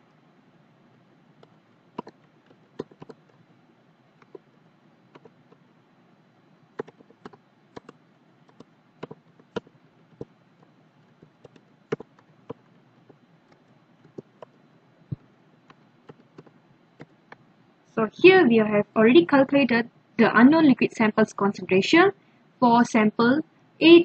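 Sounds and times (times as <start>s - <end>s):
faint steady hiss: 0.0s - 24.0s
keyboard key clicks: 6.8s - 10.3s.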